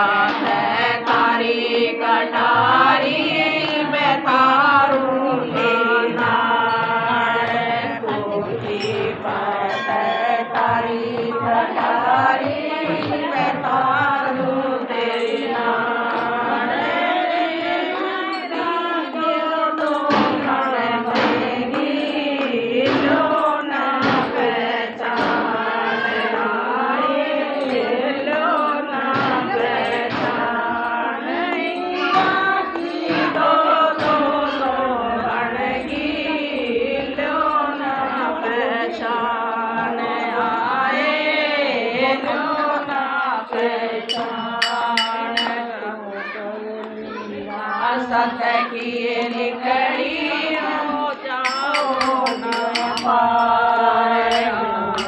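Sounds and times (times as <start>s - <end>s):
women singing together: 0.0s - 55.0s
hand claps: 44.1s - 45.7s, 51.4s - 53.5s.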